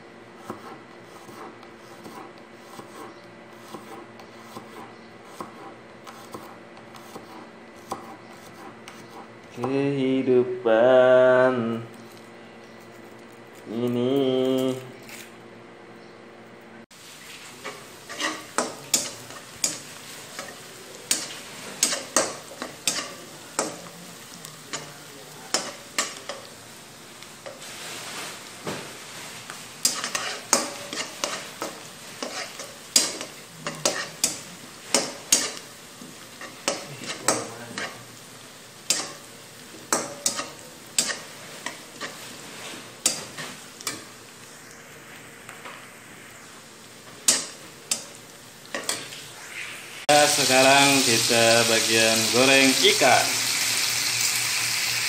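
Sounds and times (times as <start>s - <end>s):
spatula scraping frying pan: 0.4s - 9.4s, 17.3s - 23.8s, 29.8s - 38.1s, 39.9s - 44.1s
food sizzling in hot oil: 16.9s - 55.0s.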